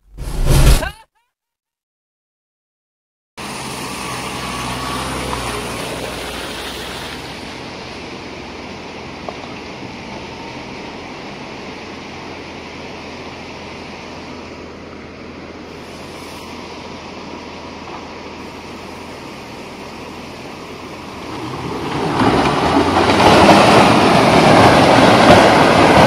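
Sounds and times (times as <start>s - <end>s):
steady rushing noise: 0.0s - 0.9s
diesel engine running: 3.4s - 26.0s.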